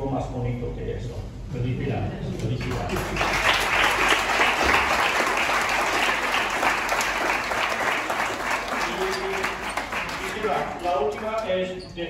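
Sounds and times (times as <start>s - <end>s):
audience applauding: 2.6s - 11.5s.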